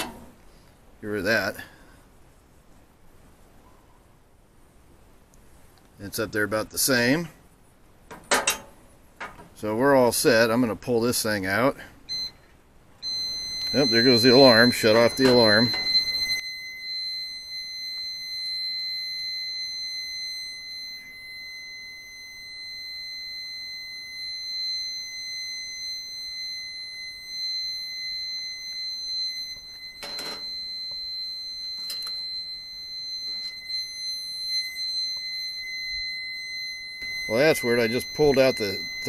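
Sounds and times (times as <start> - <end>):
high-pitched electronic alarm tone: 12.1 - 12.4, 13.0 - 39.0.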